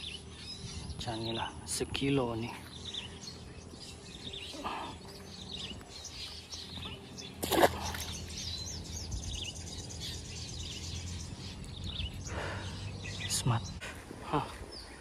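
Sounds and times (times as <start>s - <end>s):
birds chirping: 0.0s - 15.0s
fish splashing into water: 7.4s - 8.4s.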